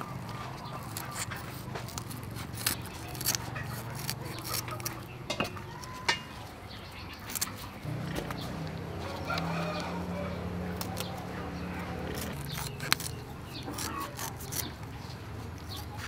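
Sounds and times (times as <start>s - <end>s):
scissors snipping: 0.3s - 6.3s, 7.1s - 10.0s, 10.7s - 16.0s
steady low hum: 7.8s - 14.0s.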